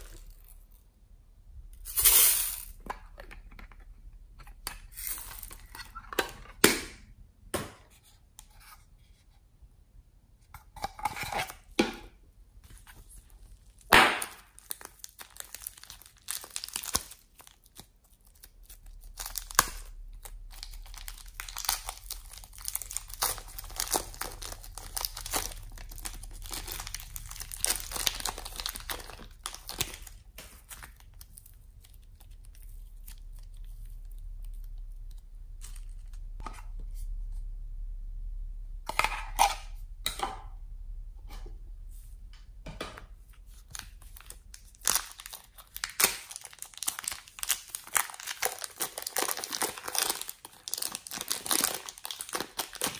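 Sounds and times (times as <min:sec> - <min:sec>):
slime stretching crackly tearing: 0:13.6 - 0:36.3, 0:43.7 - 0:52.9.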